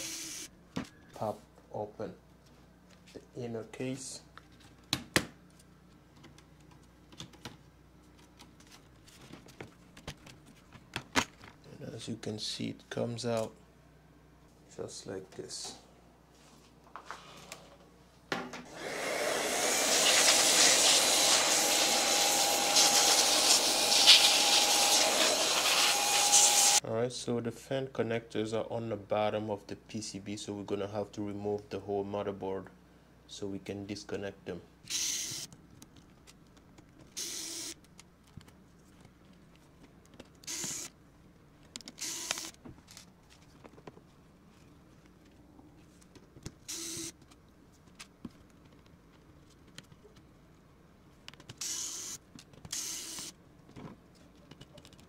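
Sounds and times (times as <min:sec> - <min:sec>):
electric screwdriver whirring: 0:18.7 - 0:26.8, 0:34.9 - 0:35.5, 0:37.2 - 0:37.8, 0:40.4 - 0:40.9, 0:42.0 - 0:42.6, 0:46.7 - 0:47.1, 0:51.6 - 0:53.3
handheld vacuum motor whine: 0:18.7 - 0:26.8, 0:40.5 - 0:40.9, 0:42.0 - 0:42.5, 0:46.7 - 0:47.1, 0:51.6 - 0:53.3.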